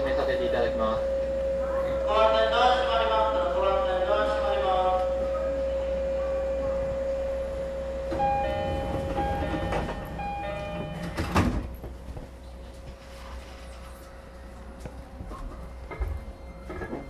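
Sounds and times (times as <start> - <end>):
train door chime: 7.5 - 11.8.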